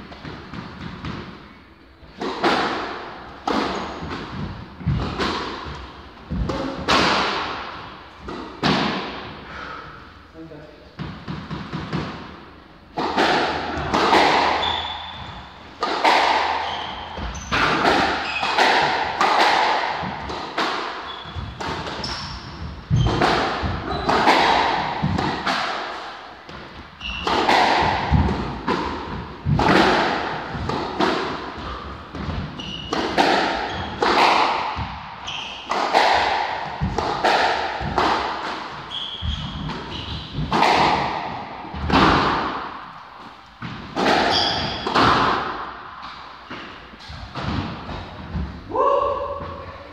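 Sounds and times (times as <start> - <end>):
squash ball hits: 0.1 - 9.4, 11.0 - 43.0, 43.6 - 48.6
shoes squeaking on wooden floor: 3.6 - 6.8, 14.1 - 15.7, 16.5 - 18.7, 21.0 - 25.2, 26.4 - 28.3, 31.6 - 35.8, 38.7 - 40.6, 44.3 - 44.9.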